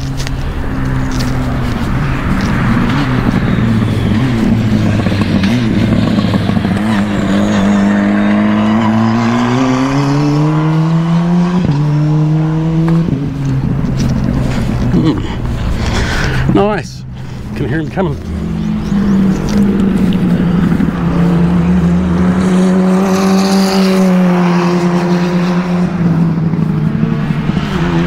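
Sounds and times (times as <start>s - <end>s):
race car engine accelerating: 0.0s - 16.7s, 17.3s - 28.0s.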